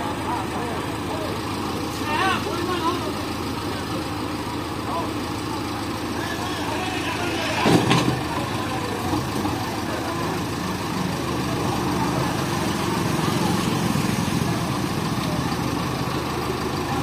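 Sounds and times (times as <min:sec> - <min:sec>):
diesel engine running: 0:00.0 - 0:17.0.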